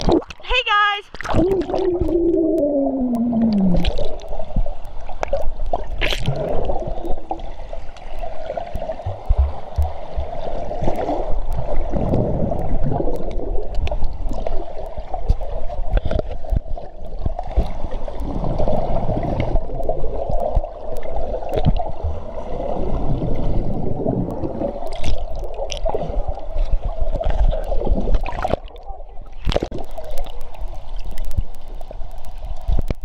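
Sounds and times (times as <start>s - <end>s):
underwater water churning and bubbling: 0.0s - 33.0s
low rumble: 1.4s - 4.9s.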